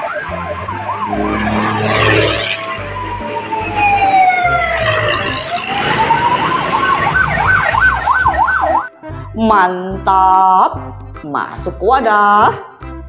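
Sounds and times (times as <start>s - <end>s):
siren wailing and yelping: 0.0s - 8.9s.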